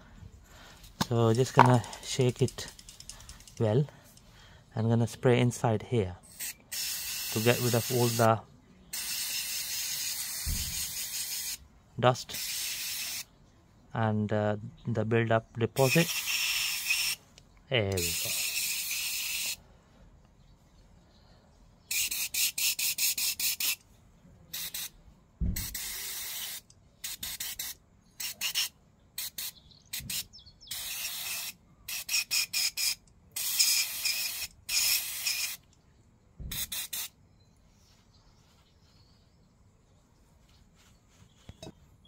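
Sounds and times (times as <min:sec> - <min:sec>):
aerosol spray hissing: 0:06.4 - 0:08.3, 0:08.9 - 0:11.6, 0:12.3 - 0:13.3, 0:15.8 - 0:17.2, 0:18.0 - 0:19.6, 0:24.5 - 0:24.9, 0:25.6 - 0:35.6, 0:36.5 - 0:37.1.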